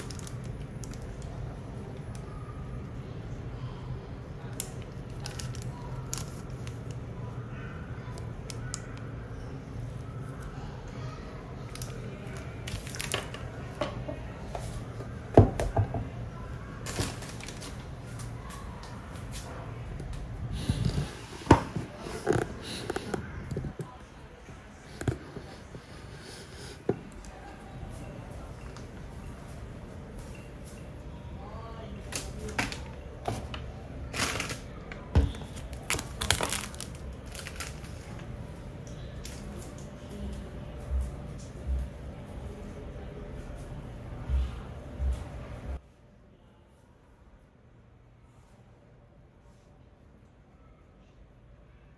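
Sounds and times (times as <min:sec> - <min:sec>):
packaging rustling: 0:00.0 - 0:01.2, 0:35.4 - 0:38.2
plastic sleeve crinkling: 0:00.0 - 0:01.4, 0:04.5 - 0:07.0, 0:11.7 - 0:13.5, 0:16.8 - 0:18.6, 0:32.1 - 0:38.2
plastic crackling: 0:00.0 - 0:02.3, 0:04.4 - 0:07.2, 0:11.6 - 0:13.7, 0:16.8 - 0:19.4, 0:32.0 - 0:39.9
low steady hum: 0:00.0 - 0:51.9.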